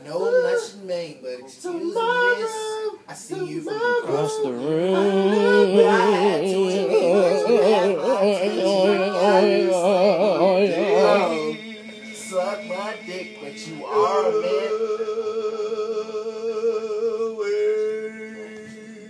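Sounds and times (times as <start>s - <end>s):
person singing with vibrato: 2.0s - 19.0s
low held note: 4.1s - 15.8s.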